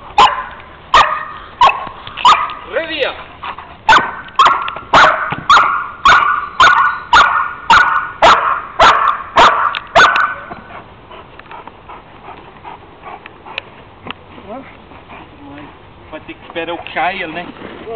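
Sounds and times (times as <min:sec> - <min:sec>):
dog barking: 0:00.2 - 0:02.6, 0:03.9 - 0:10.6.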